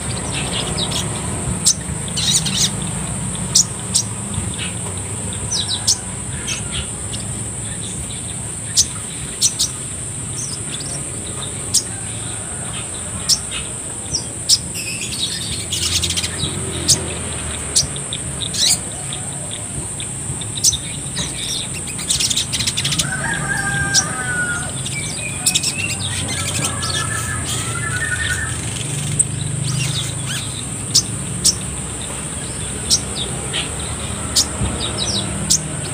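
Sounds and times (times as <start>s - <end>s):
bird chirping: 0.0s - 35.9s
bird warbling: 20.7s - 31.6s.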